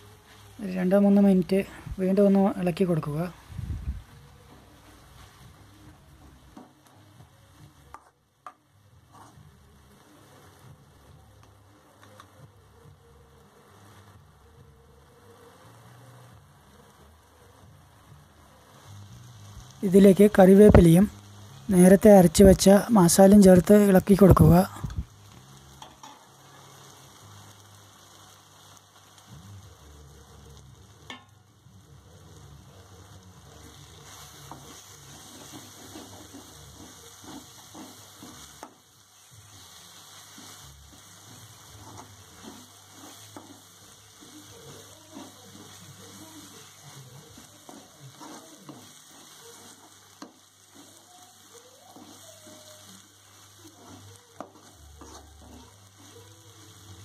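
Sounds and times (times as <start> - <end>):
frying sizzle: 0.0 - 57.0
spoon scraping metal pan: 34.0 - 38.8, 41.2 - 46.4, 47.3 - 51.1, 53.7 - 56.1.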